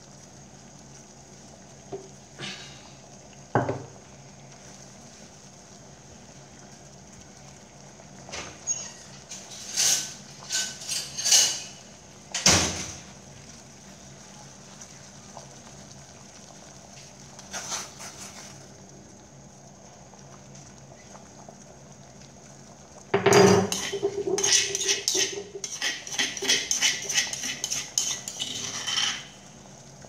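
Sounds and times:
water boiling hard in a pot: 0.0s - 30.0s
spoon stirring a pot: 8.6s - 11.8s, 23.2s - 29.5s.

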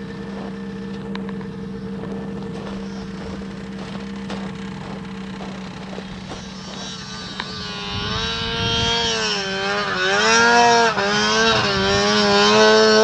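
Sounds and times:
low engine hum: 0.0s - 13.0s
snowmobile engine revving: 0.0s - 13.0s.

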